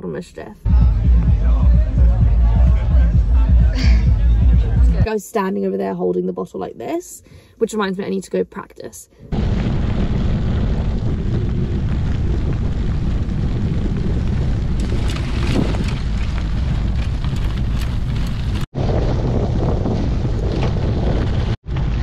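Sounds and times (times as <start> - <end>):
tyres crackling on gravel: 9.4 - 22.0
wind buffeting microphone: 9.4 - 22.0.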